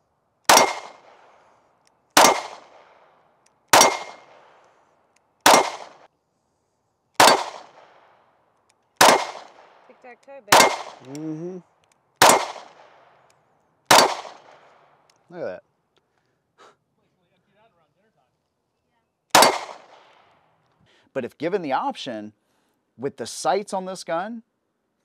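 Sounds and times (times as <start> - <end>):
pistol shots: 0.4 - 1.3, 2.1 - 3.1, 3.7 - 4.6, 5.4 - 6.1, 7.2 - 8.2, 9.0 - 9.8, 10.5 - 11.2, 12.2 - 13.2, 13.9 - 14.9, 19.3 - 20.2.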